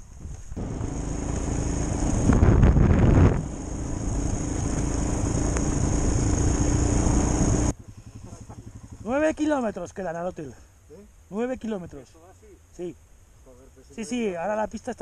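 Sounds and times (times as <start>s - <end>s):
motorcycle engine running: 0.4s - 10.2s
heavy rushing noise: 0.6s - 7.7s.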